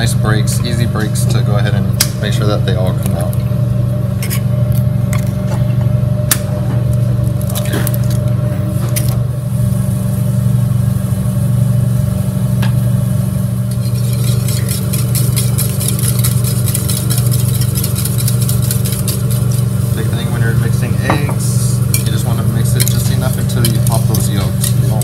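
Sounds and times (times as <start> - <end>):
low mechanical hum: 0.0 - 25.0
eggs cracking: 6.3 - 8.3, 13.8 - 19.7
whisk clicking against bowl: 13.7 - 19.7, 21.9 - 25.0.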